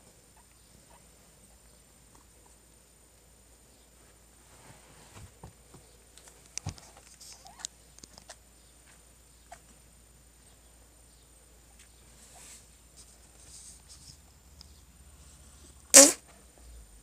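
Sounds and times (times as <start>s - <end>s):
background hiss: 0.0s - 17.0s
soft rustling: 3.8s - 9.8s, 11.7s - 14.4s.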